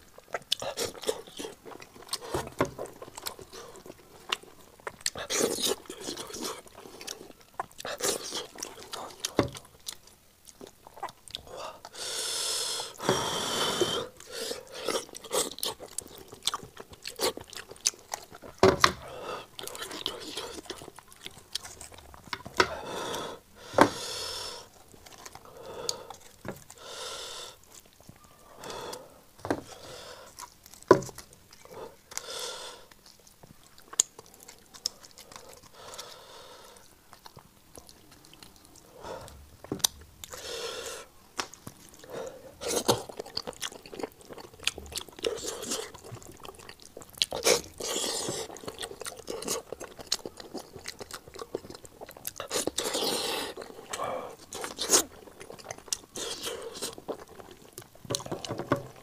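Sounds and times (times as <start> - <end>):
chewing and lip-smacking: 0.0 - 12.0, 13.8 - 23.2, 24.3 - 29.0, 29.6 - 40.6, 41.3 - 59.0.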